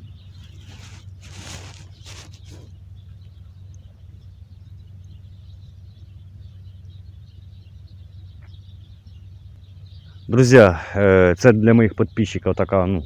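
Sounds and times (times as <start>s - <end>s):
high bird chirps: 0.0s - 13.0s
steady low rumble: 0.0s - 13.0s
short rustles: 0.3s - 2.8s.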